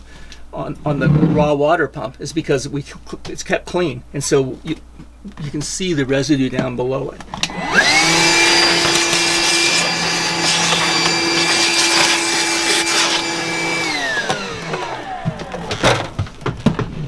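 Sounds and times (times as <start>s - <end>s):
handheld vacuum cleaner motor whining: 7.4s - 16.3s.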